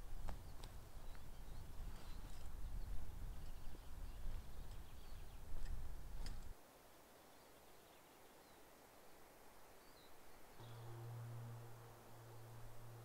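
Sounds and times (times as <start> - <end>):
bird chirps: 0.4 - 5.8, 9.8 - 13.0
low rumble: 10.6 - 13.0.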